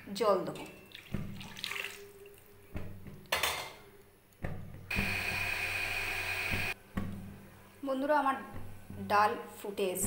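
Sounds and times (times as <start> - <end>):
water poured into pan: 0.9 - 2.4.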